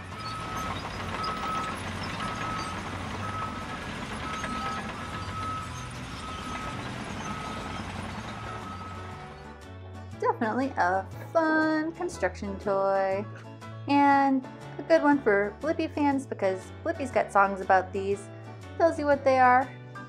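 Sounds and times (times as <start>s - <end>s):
truck reversing beeper: 0.0s - 9.6s
truck engine noise: 0.0s - 11.2s.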